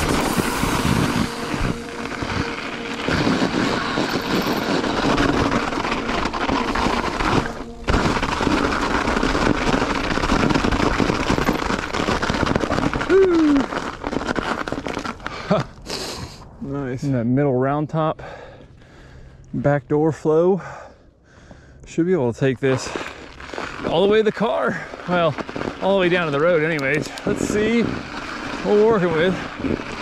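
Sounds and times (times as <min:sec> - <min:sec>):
bike rattling and knocking: 0:00.0 - 0:15.4, 0:24.6 - 0:30.0
bike tyres through snow: 0:00.0 - 0:30.0.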